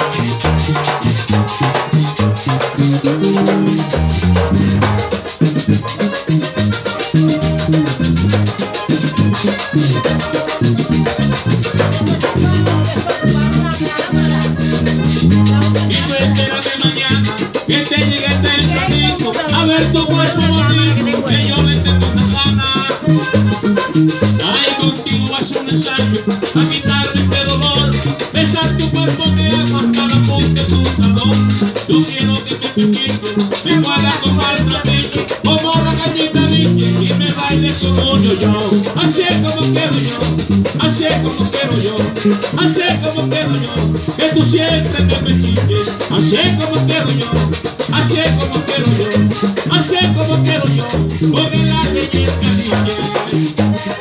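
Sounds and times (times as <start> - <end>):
bass line: 0.0 - 54.0
button accordion playing lead: 0.0 - 54.0
hand drum: 0.0 - 54.0.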